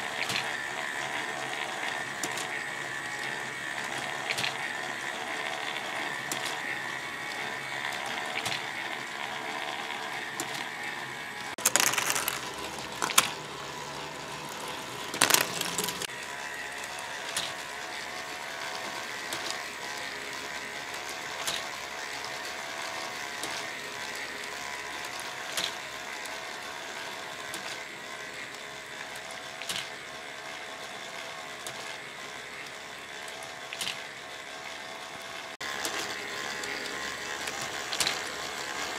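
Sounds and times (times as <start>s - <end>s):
plastic gears whirring: 0.0s - 38.9s
plastic parts clattering: 11.6s - 13.4s, 15.1s - 16.1s.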